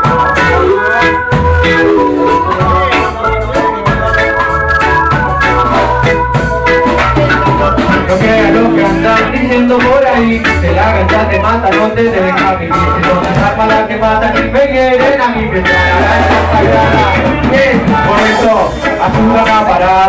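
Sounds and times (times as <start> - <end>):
bass: 0.0 - 20.0
organ-like electric keyboard: 0.0 - 20.0
steady drum beat: 4.9 - 20.0.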